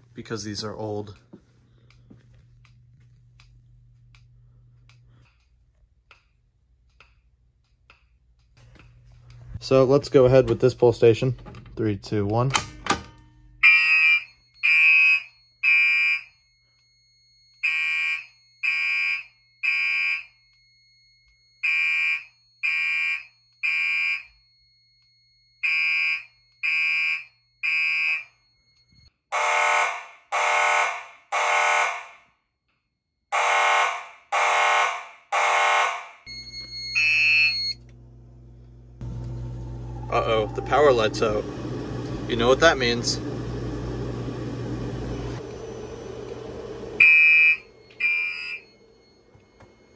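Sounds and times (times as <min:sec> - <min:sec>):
low steady hum: 0:00.0 - 0:14.7, 0:36.3 - 0:49.9
fire alarm horn blasts: 0:13.4 - 0:25.0, 0:25.6 - 0:32.4, 0:33.3 - 0:37.9, 0:46.6 - 0:49.9
short beep: 0:47.0 - 0:49.9.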